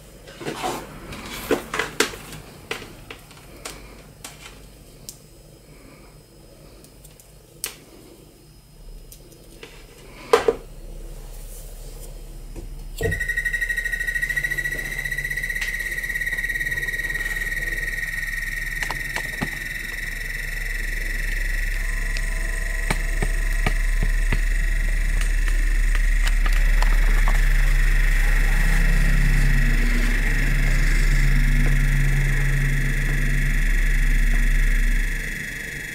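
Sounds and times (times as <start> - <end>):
low hum of spinning wheel: 8.3 - 35.9
high-pitched whine: 8.4 - 35.9.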